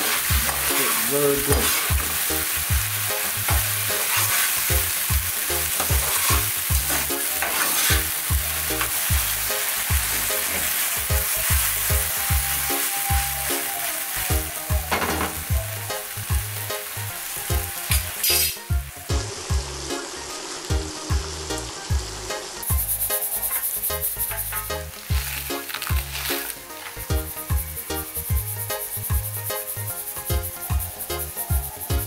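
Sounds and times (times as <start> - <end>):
spoon stirring in pan: 0.0 - 2.3, 3.1 - 12.2
vegetables sizzling in oil: 0.0 - 32.0
regular low beat: 27.0 - 32.0.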